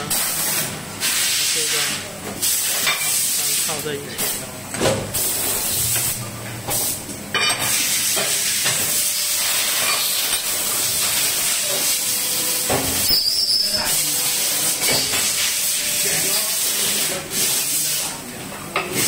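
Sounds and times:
hydraulic press hissing: 7.6s - 18.0s.

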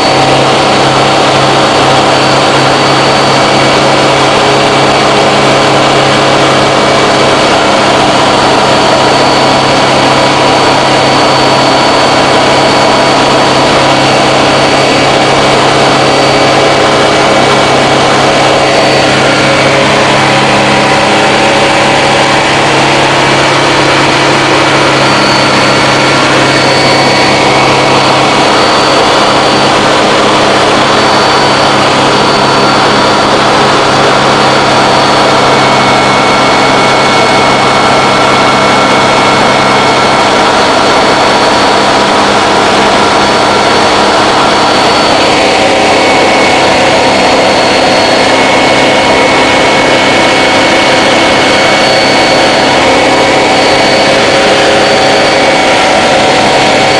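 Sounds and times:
light aircraft engine and propeller: 0.0s - 56.9s.

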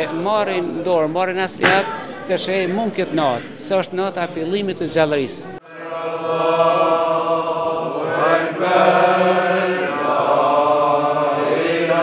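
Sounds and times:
men chanting in unison: 5.7s - 12.0s.

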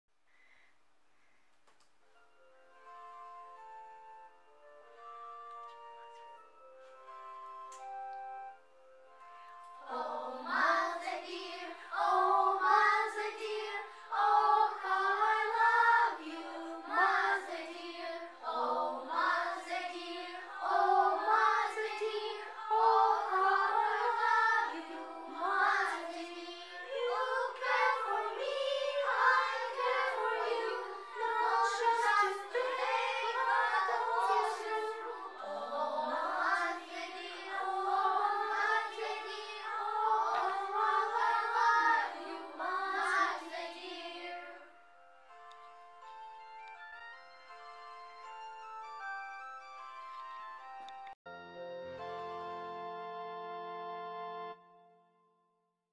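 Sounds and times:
young children singing in unison: 9.8s - 44.7s.

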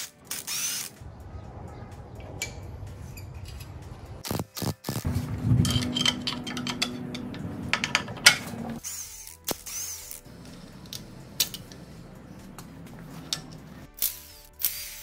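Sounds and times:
steady hum: 5.0s - 8.8s, 10.3s - 13.9s.

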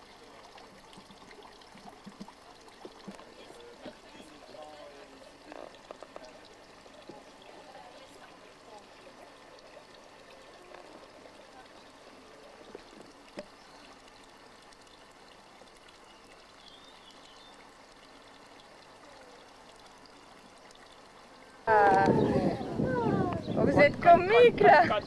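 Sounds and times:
trickling water hiss: 0.0s - 25.0s
low indistinct voices: 2.6s - 14.0s, 21.6s - 25.0s.

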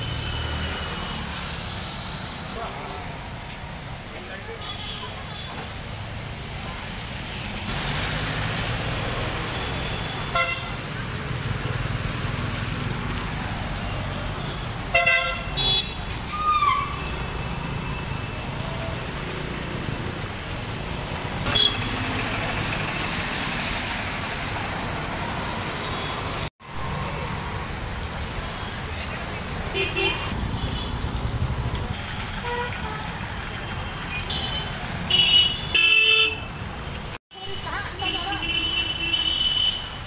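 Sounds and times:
traffic on wet roads: 0.0s - 40.0s
vehicle horns honking: 9.6s - 10.8s, 14.4s - 16.3s, 21.4s - 22.0s, 29.7s - 31.0s, 32.4s - 36.6s, 37.4s - 40.0s.

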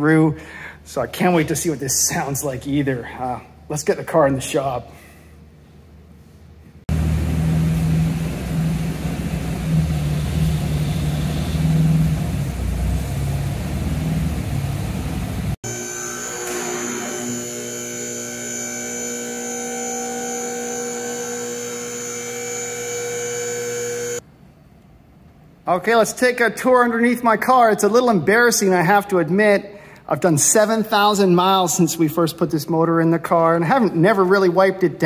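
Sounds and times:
car engine running loud and low: 6.9s - 15.6s
electric lift motor humming and whining: 6.9s - 24.2s.

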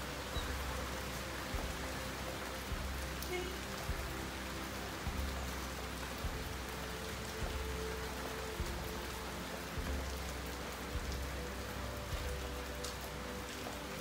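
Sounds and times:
steady rain falling: 0.0s - 14.0s
soft low thumps: 3.9s - 4.2s, 5.1s - 5.5s, 6.2s - 6.7s, 7.4s - 7.8s, 9.8s - 10.3s, 11.0s - 11.4s, 12.1s - 12.6s.

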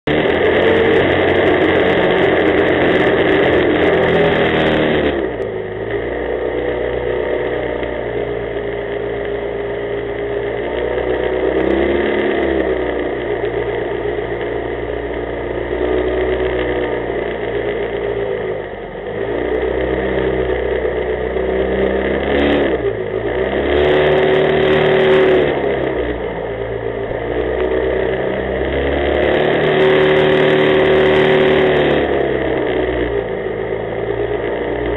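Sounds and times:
jet boat engine running: 0.0s - 14.6s.

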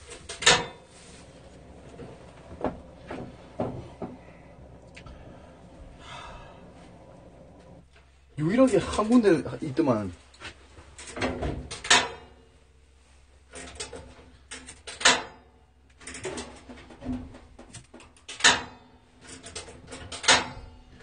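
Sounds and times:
knocks and clatter of handling: 0.0s - 6.0s, 10.2s - 12.4s, 13.5s - 21.0s.

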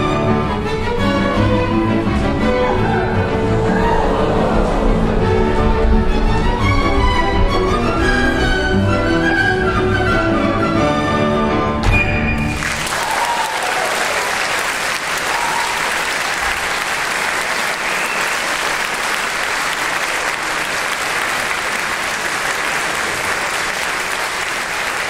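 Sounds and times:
audience applauding: 12.4s - 25.0s.

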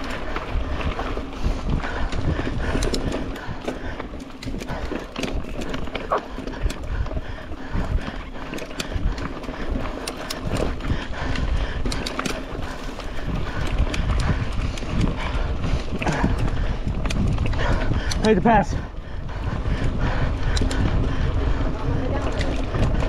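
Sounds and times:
mountain bike clattering: 0.0s - 23.0s
steady low rumble: 5.8s - 23.0s.

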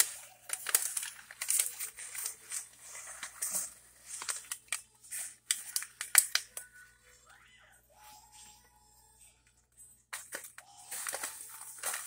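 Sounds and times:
paper towels crinkling and tearing: 0.0s - 6.9s, 10.1s - 12.0s.

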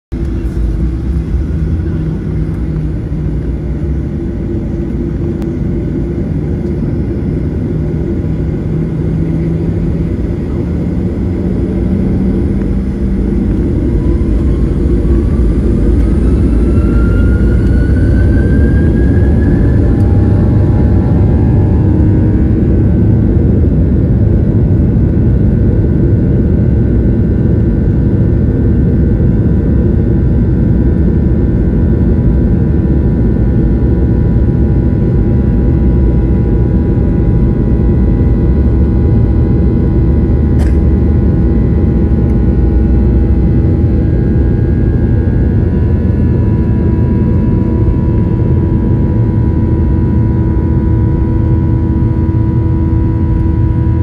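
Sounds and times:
jet engine whine: 0.1s - 54.0s
jet engines low rumble: 0.1s - 54.0s.

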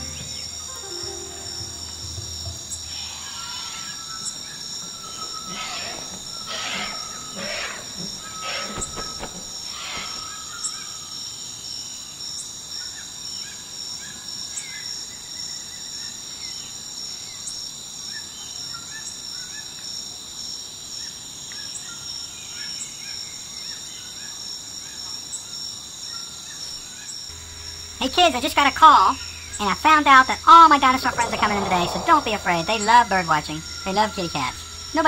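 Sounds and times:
bird chirps: 0.0s - 10.8s
high-pitched insect drone: 0.0s - 11.4s, 27.2s - 35.0s.

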